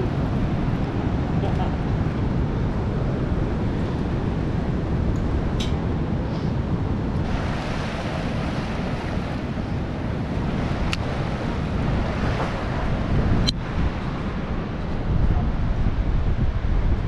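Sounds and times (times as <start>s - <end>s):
wind buffeting microphone: 0.0s - 17.0s
surf breaking: 7.1s - 14.8s.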